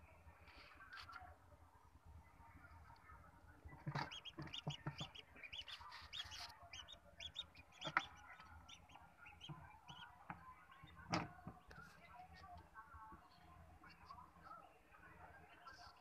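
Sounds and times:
ducklings peeping: 0:03.7 - 0:11.1.

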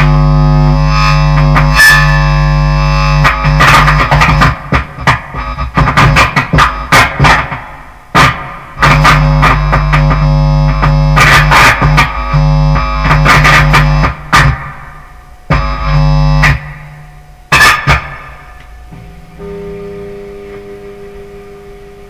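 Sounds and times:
distorted bass guitar drone: 0:00.0 - 0:22.0.

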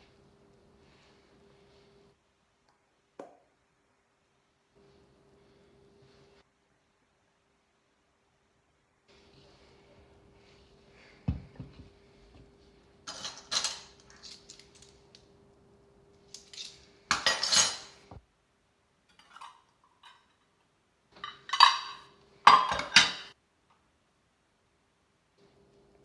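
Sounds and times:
faint steady hum: 0:00.0 - 0:26.0
dishes and utensils clattering: 0:13.1 - 0:14.4, 0:16.4 - 0:18.2, 0:19.1 - 0:20.4, 0:21.2 - 0:23.4.

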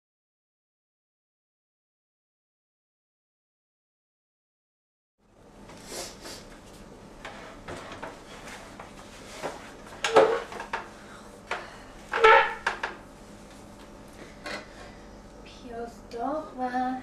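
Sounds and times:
dishes clattering: 0:09.4 - 0:10.9
dishes knocking and clinking: 0:09.4 - 0:10.9.

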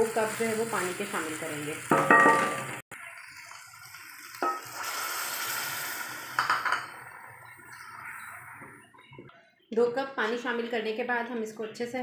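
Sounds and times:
food sizzling in a pot: 0:00.0 - 0:08.9.

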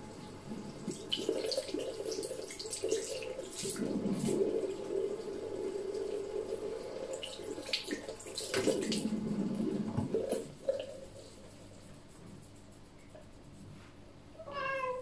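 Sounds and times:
water running from a tap: 0:00.5 - 0:11.4.

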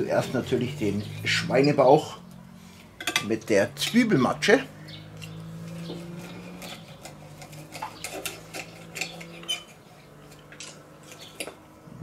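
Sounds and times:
forks clinking on plates: 0:03.0 - 0:03.3.

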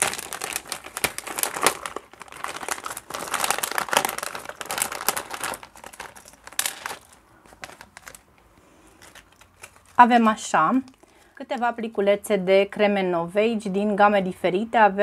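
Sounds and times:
foil pouch crinkling: 0:00.0 - 0:11.4.

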